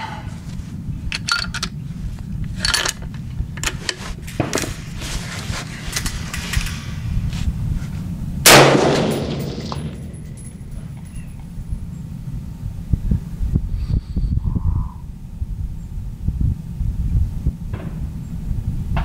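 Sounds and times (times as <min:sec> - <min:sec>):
rifle shot: 0:08.4 - 0:10.2.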